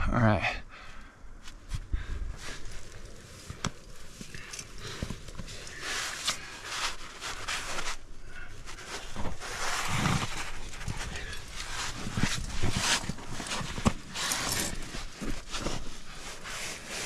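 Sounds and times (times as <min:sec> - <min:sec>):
person breathing hard: 0:00.6 - 0:02.9.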